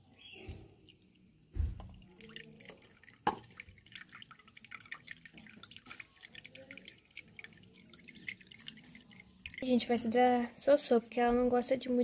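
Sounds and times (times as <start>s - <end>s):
coffee dripping into a cup: 0.0s - 10.2s
hot water pouring onto coffee: 0.5s - 10.2s.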